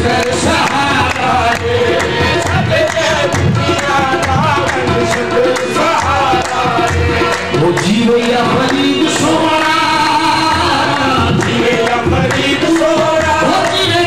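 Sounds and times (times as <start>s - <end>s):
hand drums beat: 0.0s - 14.0s.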